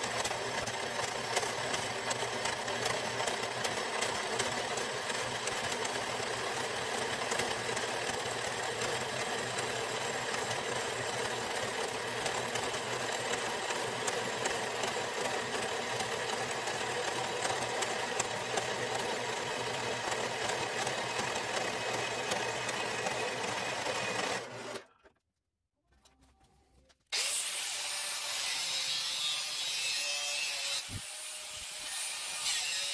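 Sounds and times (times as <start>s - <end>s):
bandsaw cutting steel: 0.0s - 24.8s, 27.1s - 32.9s.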